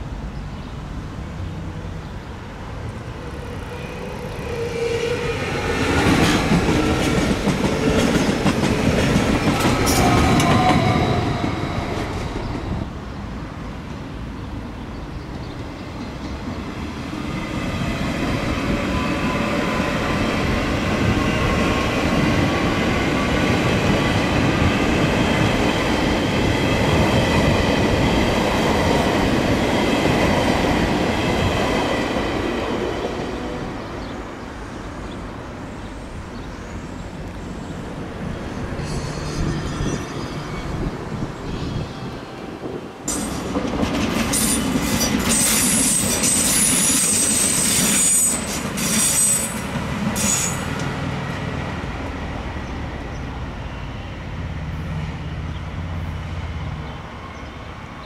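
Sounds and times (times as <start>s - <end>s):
train rumbling past: 0.0s - 58.0s
train wheels clicking over rail joints: 43.1s - 51.0s.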